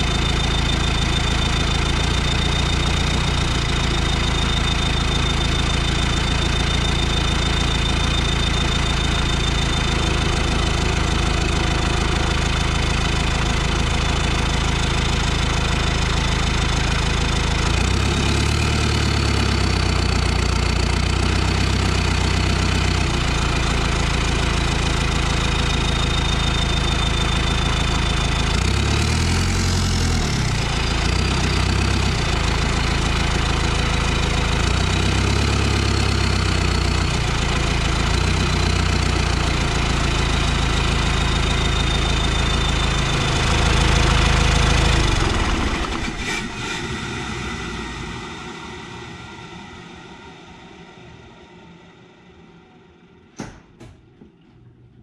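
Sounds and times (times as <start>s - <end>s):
turbo whistle: 0.0s - 12.6s, 40.3s - 48.3s
diesel engine running: 0.0s - 52.6s.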